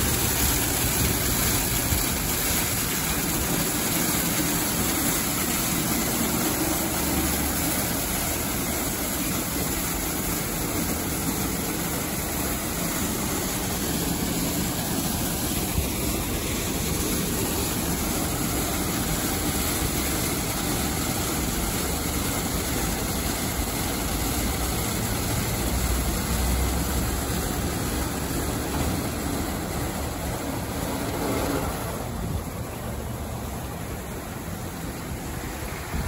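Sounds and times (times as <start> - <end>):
car wash machine hiss: 0.0 - 36.0
car wash machine rumble: 0.0 - 36.0.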